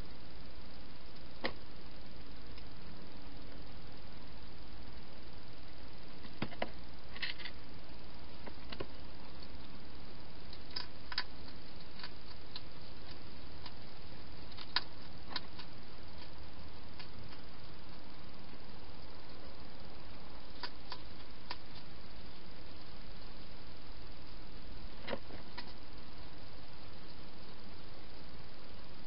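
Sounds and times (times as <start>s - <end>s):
steady hiss: 0.0s - 29.0s
hedgehog crunching food: 10.5s - 18.1s, 20.4s - 22.0s.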